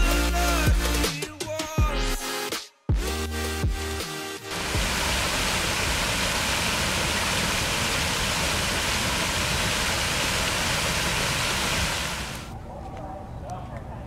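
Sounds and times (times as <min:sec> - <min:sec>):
fountain water splashing into basin: 0:04.5 - 0:12.5.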